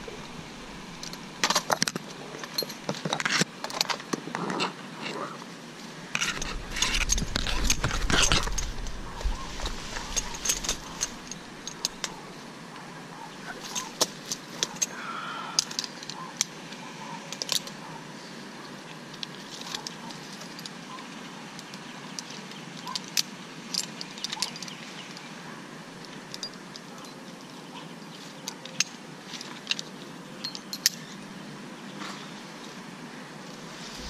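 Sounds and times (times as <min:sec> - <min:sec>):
steady outdoor hiss: 0:00.0 - 0:34.0
scrapes against tree trunk: 0:06.1 - 0:12.2
climbing hardware clinking: 0:06.2 - 0:12.3, 0:13.4 - 0:15.0, 0:22.2 - 0:25.2.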